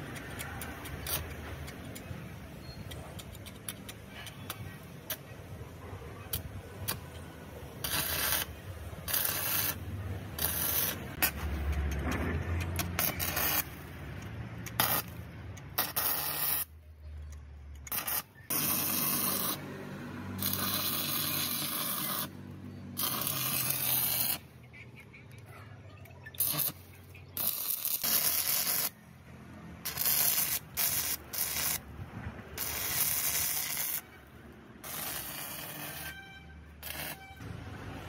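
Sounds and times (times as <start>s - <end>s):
welding arc crackling: 6.3s - 16.8s, 17.8s - 24.5s, 26.4s - 29.0s, 29.8s - 37.6s.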